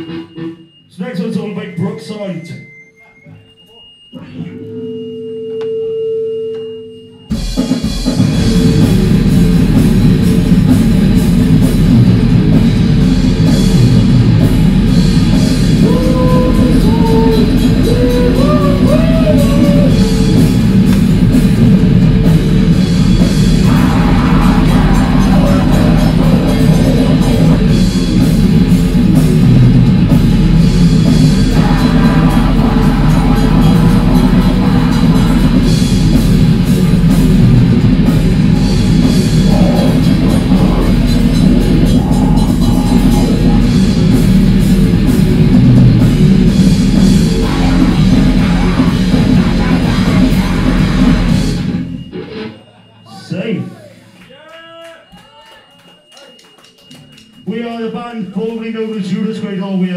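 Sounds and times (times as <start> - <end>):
grindcore band playing live: 0.0 - 1.8, 7.3 - 53.2
held ringing tone: 0.0 - 7.5, 50.6 - 54.2.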